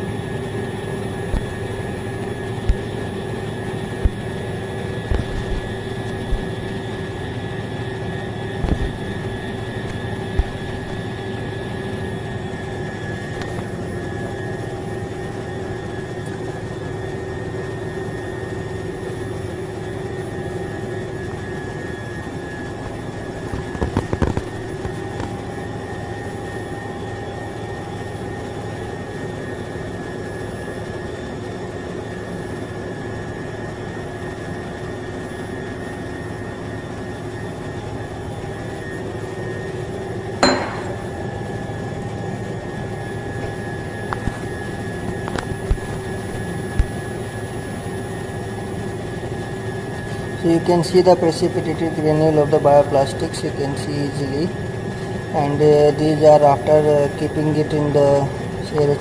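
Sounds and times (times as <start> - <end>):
machine humming with whining tones: 0.0 - 59.0
sharp click of glass bottle: 40.4 - 41.0.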